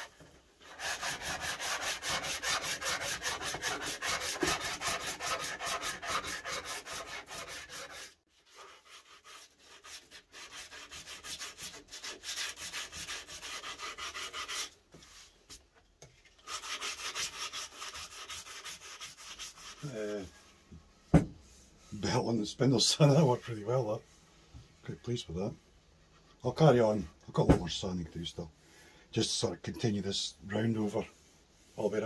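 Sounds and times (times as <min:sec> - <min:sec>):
hand-sanding wood: 0:00.0 - 0:15.3, 0:16.4 - 0:20.3, 0:30.1 - 0:32.0.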